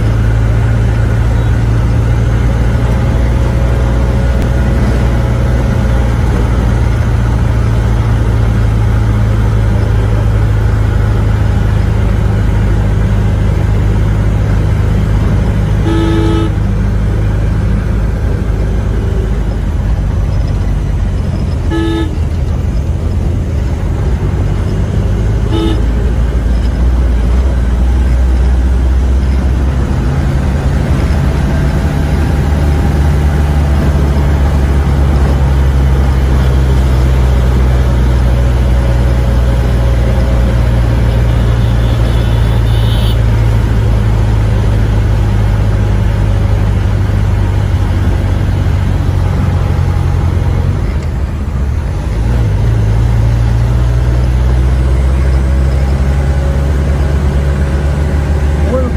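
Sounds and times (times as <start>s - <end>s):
vehicle engine droning: 0.0s - 58.9s
short horn toots: 15.8s - 16.6s, 21.6s - 22.3s, 25.4s - 26.1s, 41.3s - 43.3s.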